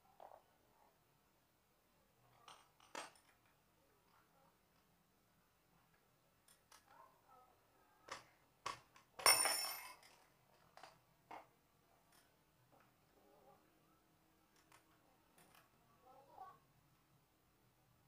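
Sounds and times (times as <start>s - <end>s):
spanner and metal parts clinking: 9.2s - 10.9s.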